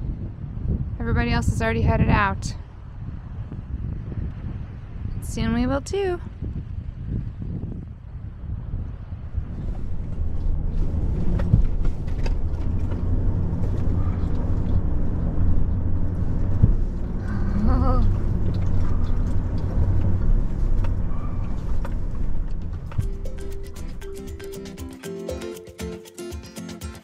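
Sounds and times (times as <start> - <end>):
truck engine running: 9.5 - 24.9.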